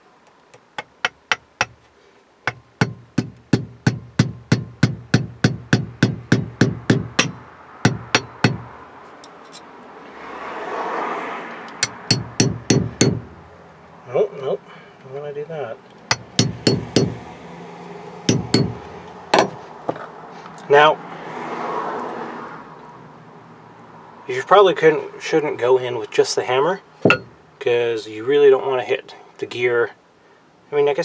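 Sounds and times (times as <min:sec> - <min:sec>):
small hammer tapping metal pin: 0:00.5 - 0:01.8, 0:02.5 - 0:09.6, 0:11.7 - 0:13.3, 0:16.1 - 0:17.2, 0:18.3 - 0:18.8, 0:19.4 - 0:19.6, 0:27.0 - 0:27.3.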